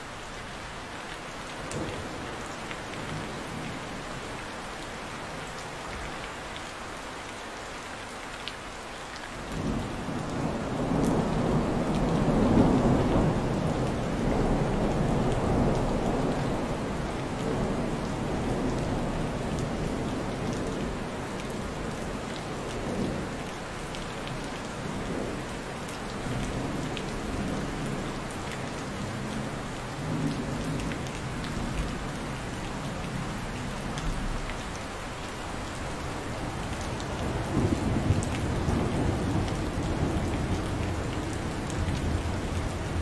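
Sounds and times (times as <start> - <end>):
steady rain falling: 0.0 - 43.0
low rumble of thunder: 9.6 - 23.8, 36.3 - 43.0.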